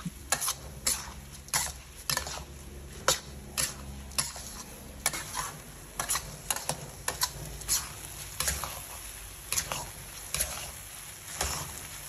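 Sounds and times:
utensils scraping cookware: 0:00.3 - 0:08.8.

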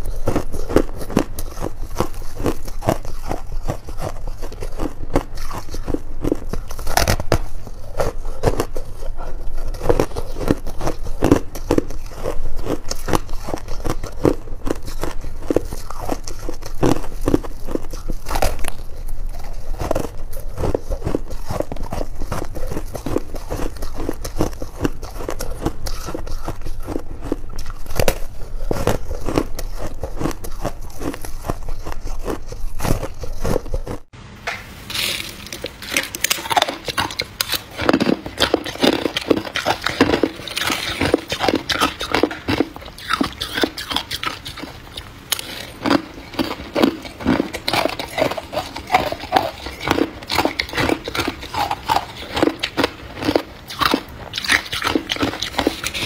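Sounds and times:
ice being crunched: 0:34.9 - 0:44.7, 0:45.3 - 0:56.0.

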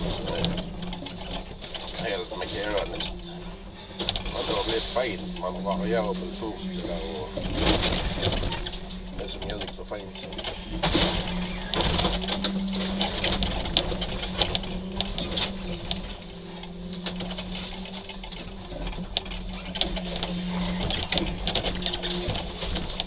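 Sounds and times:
hydraulic crane engine humming: 0:00.0 - 0:23.0.

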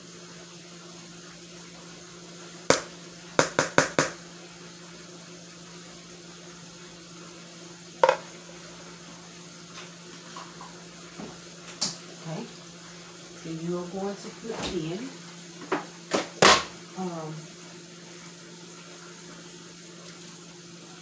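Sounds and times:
spoon tapping a bowl: 0:02.7 - 0:04.2, 0:08.0 - 0:08.3.

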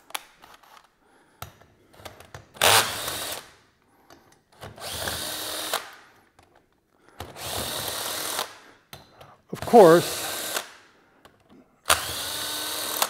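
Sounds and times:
cordless drill spinning: 0:02.6 - 0:03.4, 0:04.6 - 0:05.9, 0:07.2 - 0:08.5, 0:09.7 - 0:10.7, 0:11.9 - 0:13.0.

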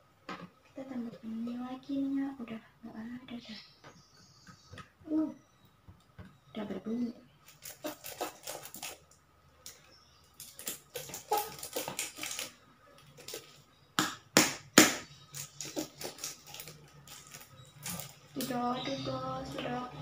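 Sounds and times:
plastic squeeze bottle sputtering: 0:07.5 - 0:09.2, 0:10.4 - 0:13.5, 0:15.3 - 0:18.5.

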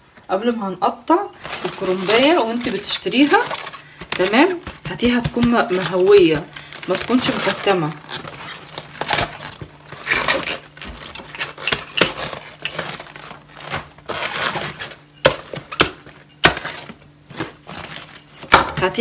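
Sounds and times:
leafy rustling: 0:01.4 - 0:11.4.

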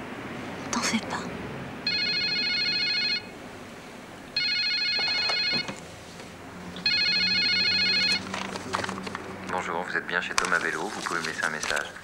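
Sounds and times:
landline telephone ringing: 0:01.8 - 0:03.3, 0:04.4 - 0:05.8, 0:06.8 - 0:08.3.

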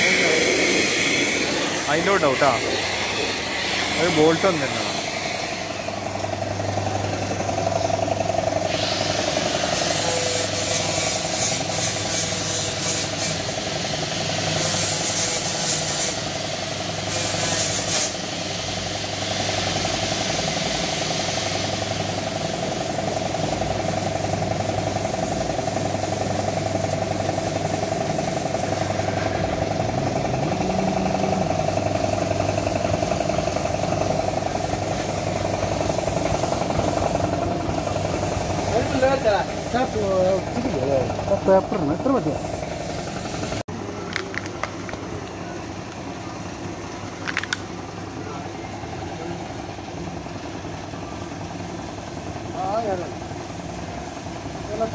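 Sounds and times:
spray gun hissing: 0:00.0 - 0:43.6, 0:52.8 - 0:54.9
air compressor humming: 0:00.0 - 0:54.9.

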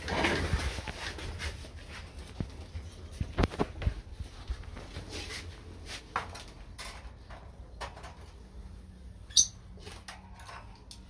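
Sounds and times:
high-pitched bird chirp: 0:09.3 - 0:09.6.

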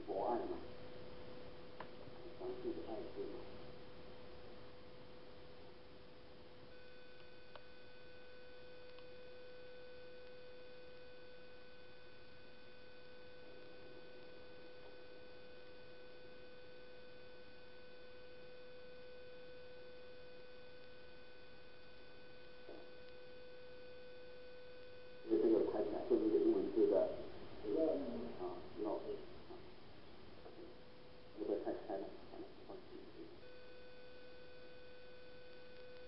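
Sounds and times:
background hiss: 0:00.0 - 0:16.5, 0:17.3 - 0:36.0
electronic whine: 0:00.0 - 0:36.0
faint click: 0:08.8 - 0:09.1, 0:35.5 - 0:36.0.

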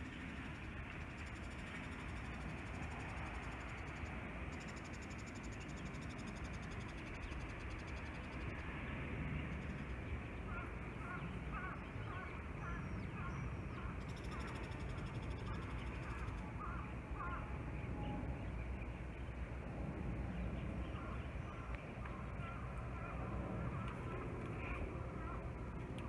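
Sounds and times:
jet airliner rumbling overhead: 0:05.2 - 0:26.0
bird calling: 0:10.4 - 0:17.6.

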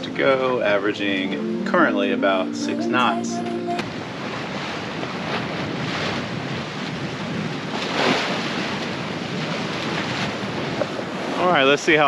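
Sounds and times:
water rushing past hull: 0:00.0 - 0:12.0
wind buffeting microphone: 0:03.8 - 0:12.0.

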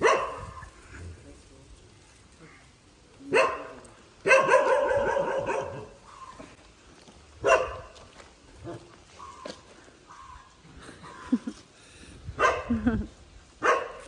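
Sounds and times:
dog barking: 0:00.0 - 0:00.7, 0:03.3 - 0:06.3, 0:07.4 - 0:08.0, 0:12.4 - 0:12.7, 0:13.6 - 0:14.0.

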